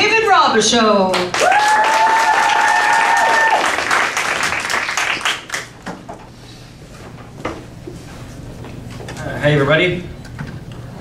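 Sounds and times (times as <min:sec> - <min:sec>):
audience applauding: 0:01.1 - 0:05.8
long held shout: 0:01.4 - 0:03.8.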